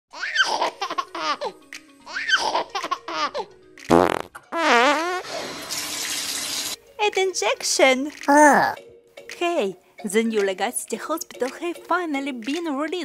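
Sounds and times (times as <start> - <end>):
baby giggling: 0.2 - 3.5
comic fart noises: 3.9 - 5.6.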